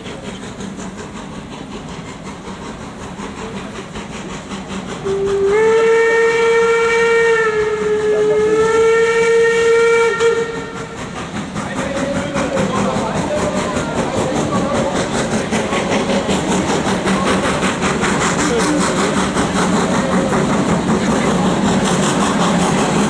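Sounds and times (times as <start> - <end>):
steam hissing: 0.0 - 23.0
steam locomotive moving: 0.0 - 23.0
steam whistle blast: 5.0 - 10.9.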